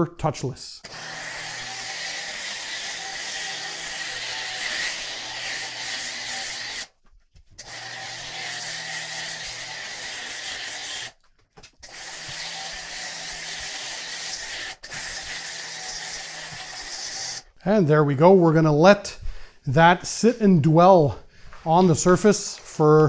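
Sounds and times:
pressure washer hum: 0.8 - 6.9, 7.6 - 11.2, 11.8 - 17.5
foam cannon spraying foam: 11.8 - 17.4.

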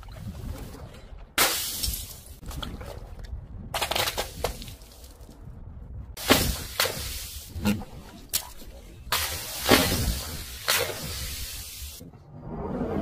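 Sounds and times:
water balloon bursting: 6.2 - 7.4, 9.1 - 11.8.

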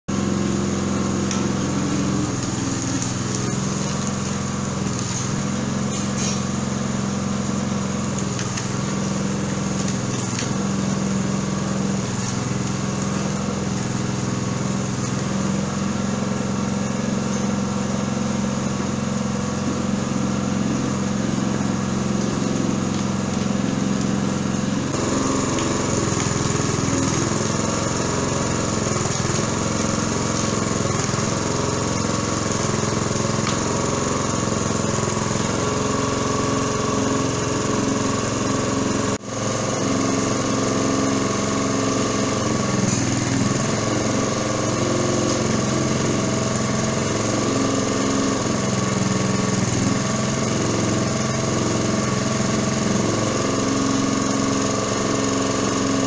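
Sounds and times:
small petrol engine running: 0.1 - 56.0.

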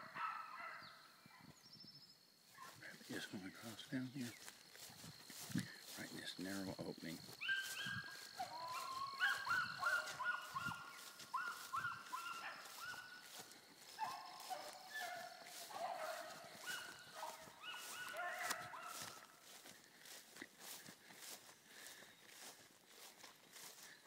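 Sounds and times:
hounds baying: 0.0 - 1.0, 7.2 - 19.8.

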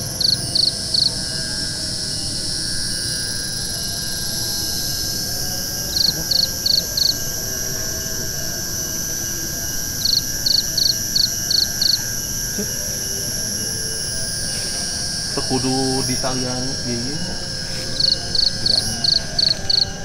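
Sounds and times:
insect chorus: 0.0 - 20.0.

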